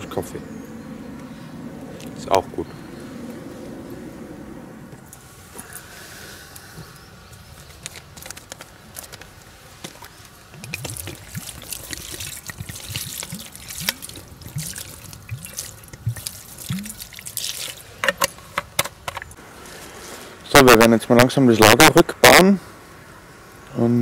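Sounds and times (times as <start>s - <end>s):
water glugging from bottle: 10.5s - 18.2s.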